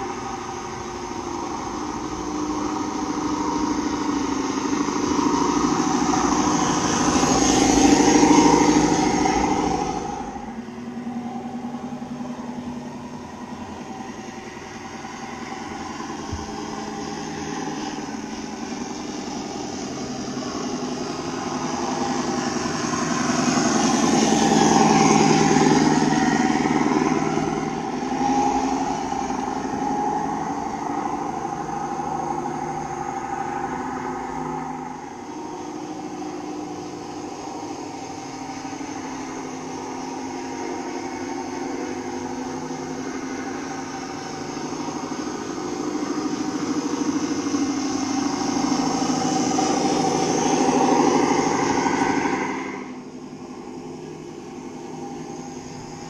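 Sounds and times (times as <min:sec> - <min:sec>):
simulated truck engine running: 0:00.0 - 0:56.0.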